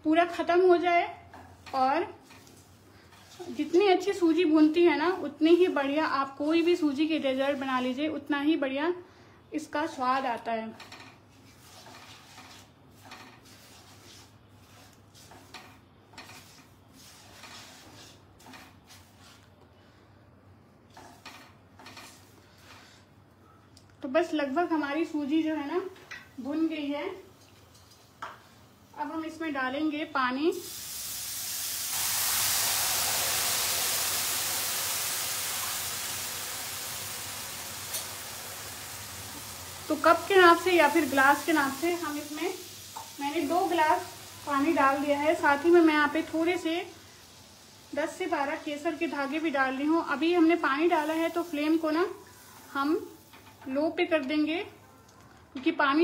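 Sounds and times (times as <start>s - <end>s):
spatula scraping in a pan: 1.3s - 7.9s, 10.8s - 19.5s, 20.9s - 23.1s, 33.9s - 47.4s
water sizzling in hot pan: 1.4s - 8.0s, 30.5s - 54.1s.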